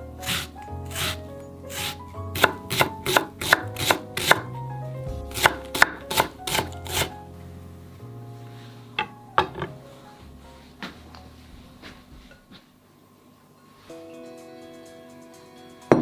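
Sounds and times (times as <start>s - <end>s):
knife chopping on cutting board: 0.3s - 4.5s, 5.3s - 7.1s.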